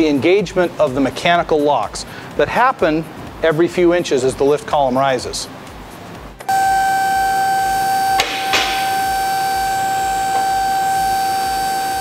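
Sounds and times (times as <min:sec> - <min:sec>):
hydraulic pump whining: 0:06.4 - 0:12.0
safety locks clacking: 0:08.2 - 0:08.9.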